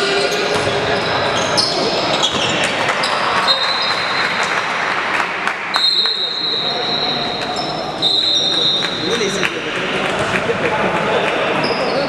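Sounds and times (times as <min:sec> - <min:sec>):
voices of players and spectators: 0:00.0 - 0:12.0
sneakers squeaking on hardwood: 0:00.2 - 0:04.2.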